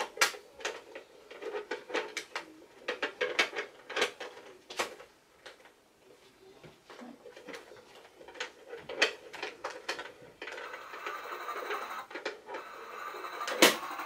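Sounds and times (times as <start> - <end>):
plastic items clicking and knocking: 0.0 - 5.8, 7.3 - 12.7, 13.3 - 14.0
small motor whirring: 10.6 - 14.0.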